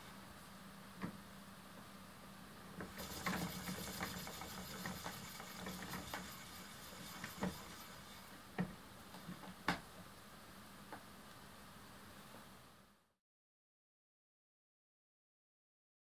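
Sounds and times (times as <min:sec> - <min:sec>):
spinning wheel whirring: 0:02.9 - 0:08.4.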